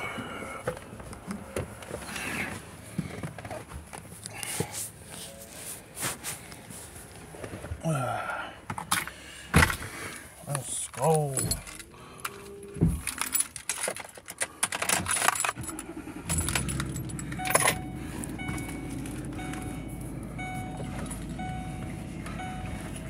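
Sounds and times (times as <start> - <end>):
keys jangling: 11.1 - 12.4, 13.0 - 17.8
car engine starting and idling: 11.4 - 23.0
faint short beeps: 17.4 - 23.0.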